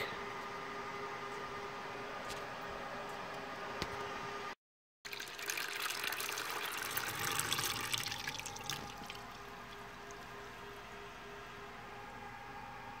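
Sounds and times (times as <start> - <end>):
water trickling into plastic bucket: 5.1 - 10.4.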